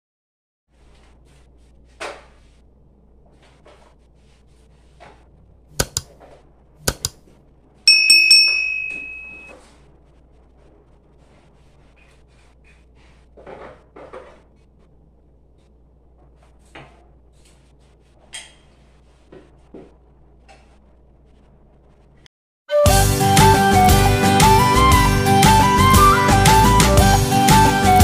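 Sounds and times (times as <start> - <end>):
ringing clink of metal or glass: 7.9 - 9.5.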